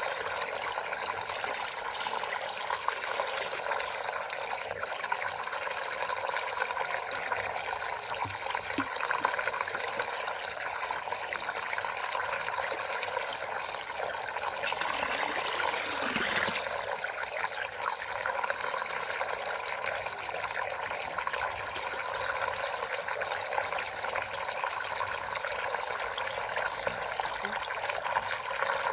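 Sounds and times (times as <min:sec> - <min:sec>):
water rushing down a vortex: 0:14.3 - 0:18.6.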